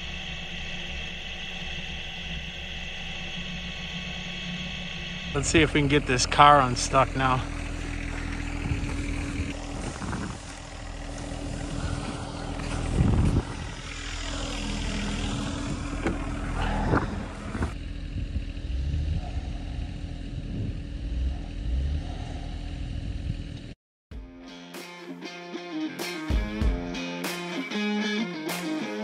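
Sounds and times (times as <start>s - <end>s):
tractor diesel engine idling: 0.0s - 23.8s
footsteps crunching in snow: 7.6s - 13.6s.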